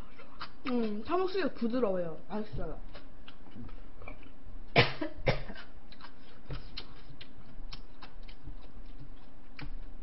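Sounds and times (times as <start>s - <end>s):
woman coughing: 4.8s - 5.7s.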